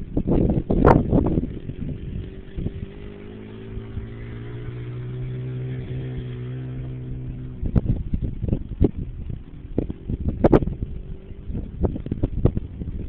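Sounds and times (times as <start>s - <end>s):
small atv engine running: 0.0s - 13.0s
wind buffeting microphone: 0.0s - 13.0s.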